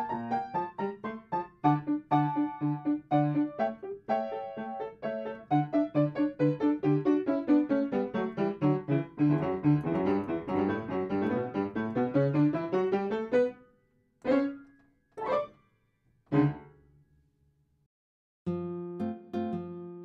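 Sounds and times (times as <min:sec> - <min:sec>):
piano music: 0:00.0 - 0:13.6, 0:14.2 - 0:15.6, 0:16.3 - 0:16.8.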